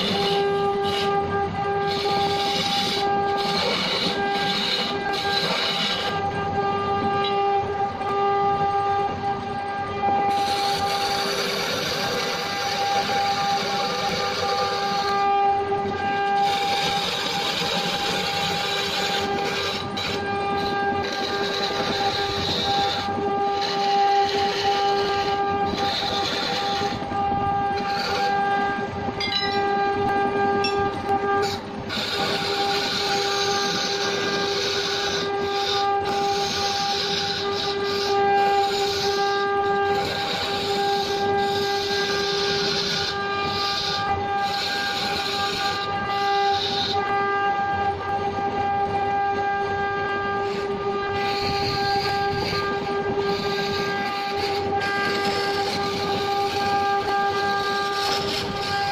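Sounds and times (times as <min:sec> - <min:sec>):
chisel scraping wood: 0:00.0 - 0:08.9, 0:09.5 - 0:28.8, 0:29.5 - 0:47.6, 0:48.6 - 0:58.9
wood lathe humming whine: 0:00.0 - 0:58.9.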